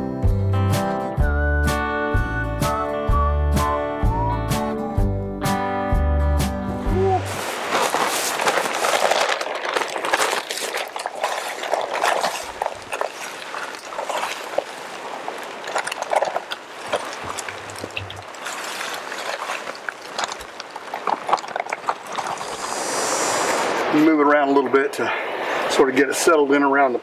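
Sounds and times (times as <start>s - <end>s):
gravel clicking: 7.0s - 23.5s
concrete mix pouring: 7.0s - 23.6s.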